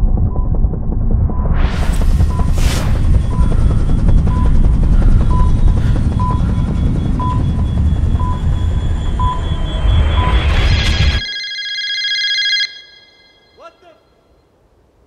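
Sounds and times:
loud low rumble: 0:00.0 - 0:11.2
rising swell: 0:01.4 - 0:13.6
countdown timer beeping: 0:03.2 - 0:13.6.

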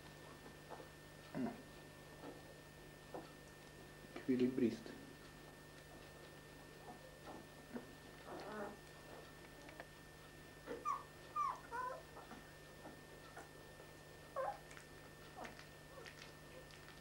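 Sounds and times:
puppies squeaking and whimpering: 0:10.7 - 0:12.3, 0:14.4 - 0:14.6.

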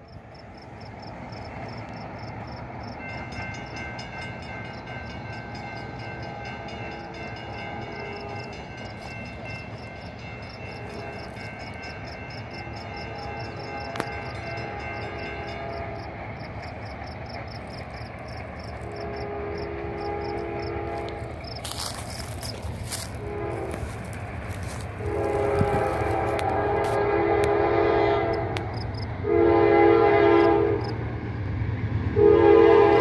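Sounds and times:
crickets chirping: 0:00.0 - 0:27.4, 0:28.2 - 0:29.2, 0:30.4 - 0:31.5
locomotive rumble: 0:00.1 - 0:33.0
locomotive horn blasts: 0:12.7 - 0:16.2, 0:18.8 - 0:31.0, 0:32.1 - 0:33.0.

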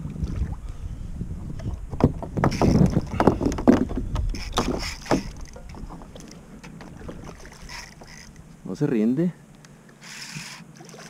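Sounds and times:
knocks against kayak: 0:01.9 - 0:07.4
water splashing: 0:02.4 - 0:08.6, 0:10.2 - 0:11.0.

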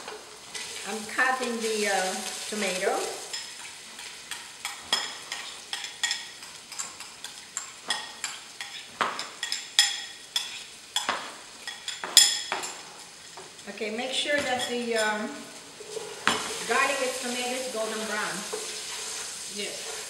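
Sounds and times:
onions sizzling in oil: 0:00.0 - 0:20.0.

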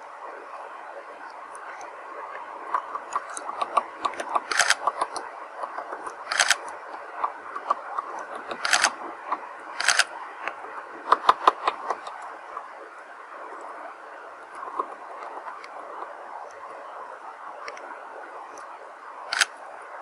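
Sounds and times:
woodpecker rapid clicking: 0:02.7 - 0:12.2.

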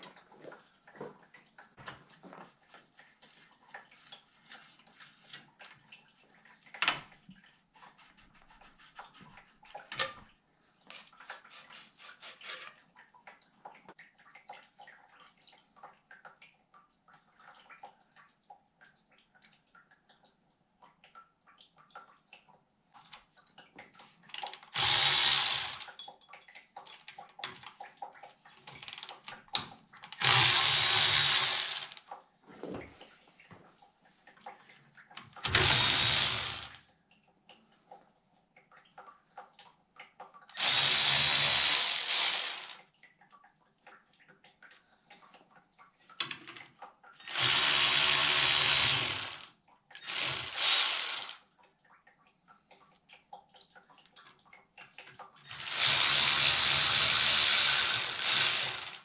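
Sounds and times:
cordless power driver whirring: 0:24.4 - 0:25.8, 0:30.1 - 0:32.0, 0:35.5 - 0:36.8, 0:40.6 - 0:42.8, 0:47.3 - 0:51.4, 0:55.5 - 0:59.0.

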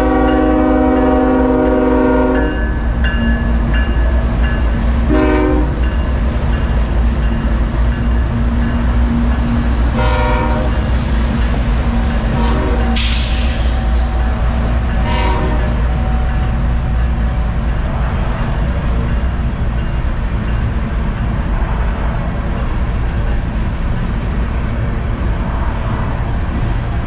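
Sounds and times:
diesel locomotive horn: 0:00.0 - 0:02.7, 0:05.0 - 0:06.0, 0:09.8 - 0:10.9, 0:12.3 - 0:17.0
train low rumble: 0:00.0 - 0:27.0
burst of hiss: 0:13.0 - 0:14.2.

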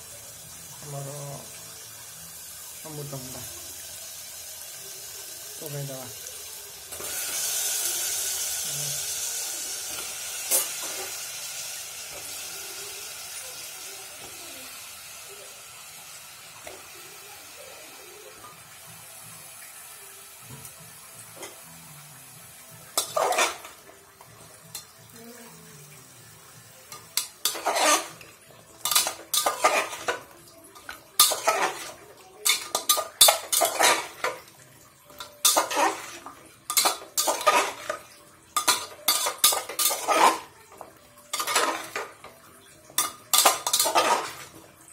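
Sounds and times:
food sizzling in hot oil: 0:00.0 - 0:44.9
metal spoon scraping a pot: 0:23.0 - 0:23.7, 0:27.2 - 0:34.4, 0:35.2 - 0:38.0, 0:38.6 - 0:40.5, 0:41.3 - 0:42.1, 0:43.0 - 0:44.5.

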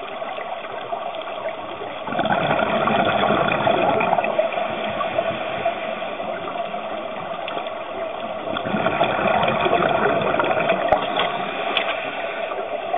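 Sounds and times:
faint clicks: 0:00.0 - 0:02.0, 0:06.4 - 0:09.1, 0:10.1 - 0:12.7
muffled underwater water rush: 0:00.0 - 0:12.9.

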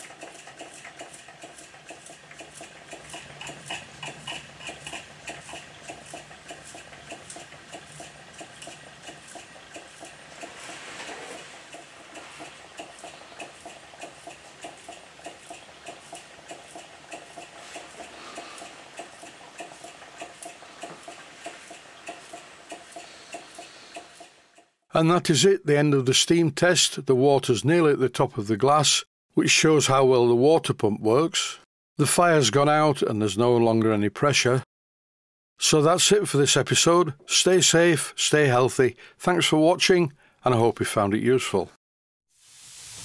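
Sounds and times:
steam engine ticking over: 0:00.0 - 0:25.5.

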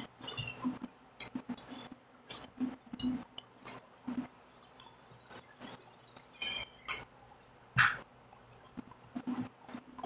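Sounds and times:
fork clinking on glass plate: 0:00.0 - 0:00.7.

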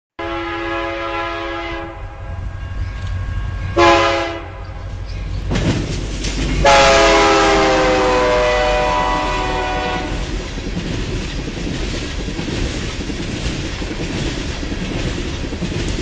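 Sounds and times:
locomotive air horn: 0:00.2 - 0:04.9, 0:06.6 - 0:10.2
train rumble: 0:00.2 - 0:16.0.

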